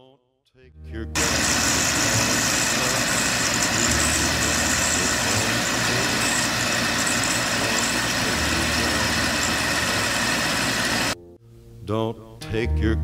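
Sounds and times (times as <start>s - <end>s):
metal lathe cutting: 1.2s - 11.2s.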